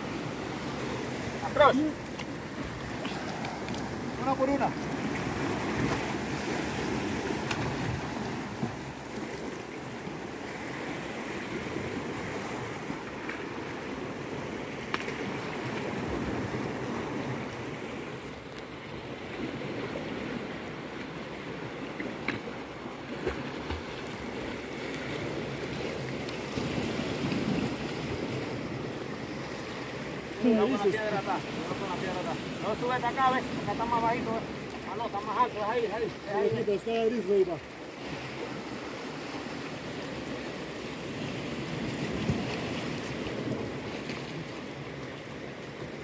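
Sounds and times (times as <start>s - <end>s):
waves washing against rocks: 0.0s - 18.3s, 19.2s - 46.0s.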